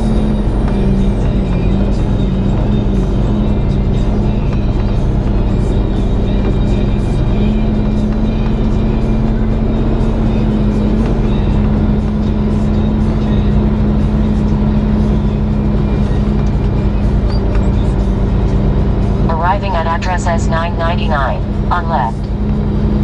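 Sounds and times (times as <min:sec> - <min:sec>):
truck diesel engine droning: 0:00.0 - 0:23.0.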